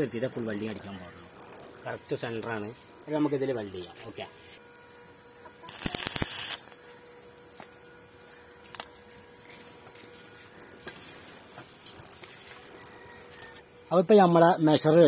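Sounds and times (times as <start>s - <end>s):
chain clicks: 0.0s - 2.0s, 2.8s - 3.2s, 10.6s - 13.6s
arc welding crackling: 0.0s - 4.8s, 5.6s - 7.7s, 8.7s - 13.6s.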